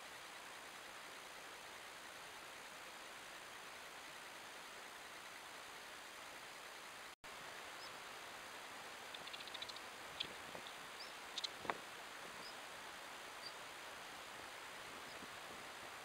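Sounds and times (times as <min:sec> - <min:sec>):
microphone hiss: 0:00.0 - 0:16.0
otters chirping: 0:09.0 - 0:12.7
sharp clicks in grass: 0:09.1 - 0:11.8.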